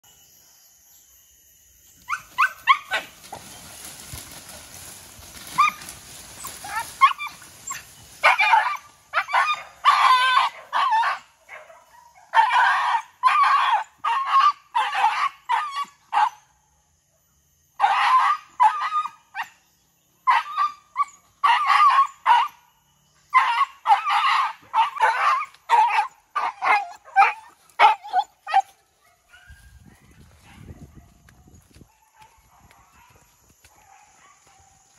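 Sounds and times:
dogs barking: 5.5 - 16.4, 20.3 - 22.6, 23.3 - 34.9.

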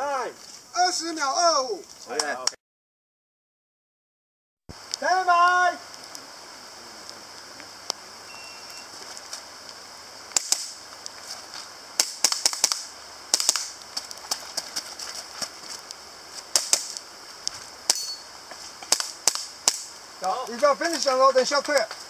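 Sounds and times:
airsoft pistol shots: 10.4 - 10.8, 12.0 - 13.8.

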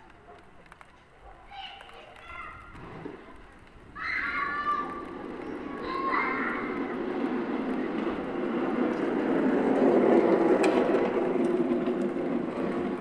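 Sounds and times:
vehicle passing by: 5.8 - 13.0.

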